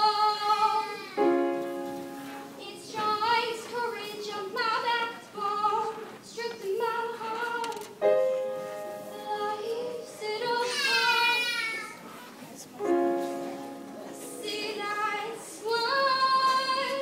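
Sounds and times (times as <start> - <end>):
woman singing slow melody: 8.9 - 11.4, 14.3 - 17.0.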